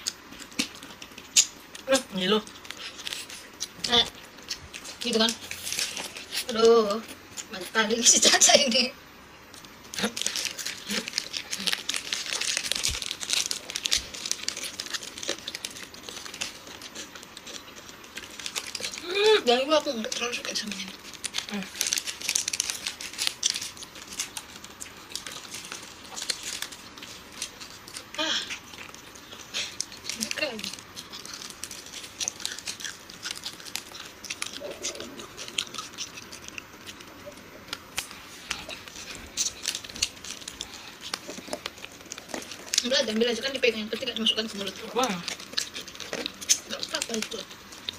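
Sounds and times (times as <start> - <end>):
plastic wrapper crinkling: 0.0 - 8.6, 9.5 - 47.9
chewing and crunching: 0.0 - 8.7, 9.4 - 47.9.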